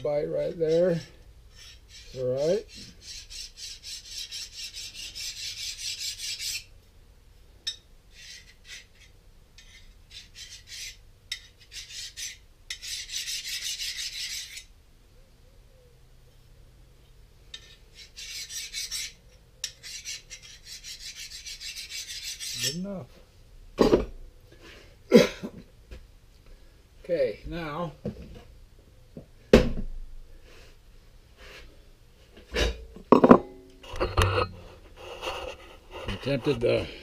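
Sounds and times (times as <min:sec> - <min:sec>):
file rasping on steel blade: 0:00.3 - 0:06.7, 0:08.1 - 0:14.7, 0:17.5 - 0:22.9.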